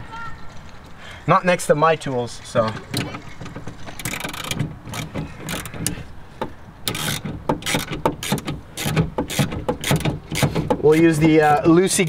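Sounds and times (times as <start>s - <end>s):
hand ratchet clicking: 4.0s - 6.0s, 6.8s - 11.2s.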